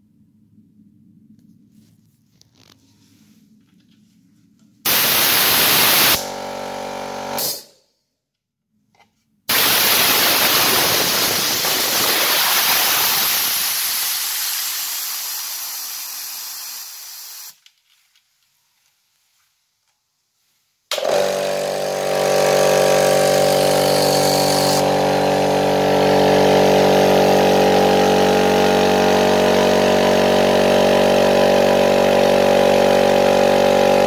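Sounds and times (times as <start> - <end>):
compressed air hissing from valve: 4.9 - 6.2, 9.5 - 17.6.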